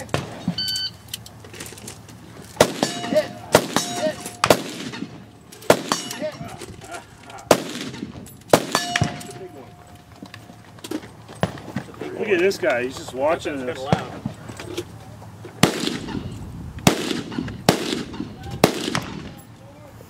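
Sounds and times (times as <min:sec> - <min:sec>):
shot timer beep: 0:00.6 - 0:01.0
gunshots: 0:02.6 - 0:06.6, 0:07.4 - 0:09.7, 0:15.6 - 0:19.4
steel target ringing: 0:02.6 - 0:06.6, 0:07.6 - 0:10.2.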